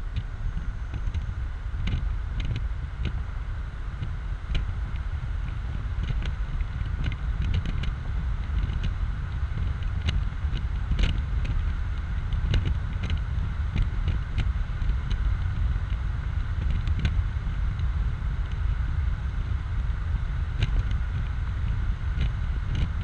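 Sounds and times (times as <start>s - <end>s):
wind and road noise: 0.0s - 23.0s
wind buffeting microphone: 0.0s - 23.0s
light clicks and ticks: 4.0s - 16.0s.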